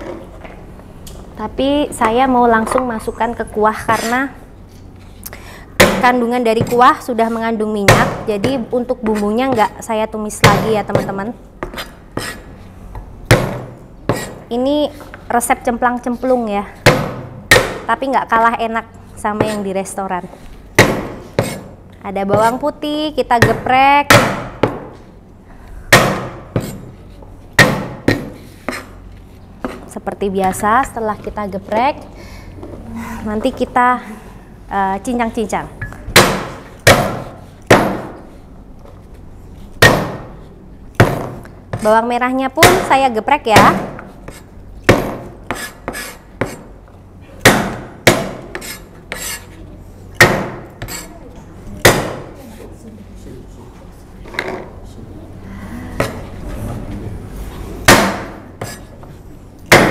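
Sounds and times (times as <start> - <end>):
cleaver whacking cutting board: 57.9 - 58.8.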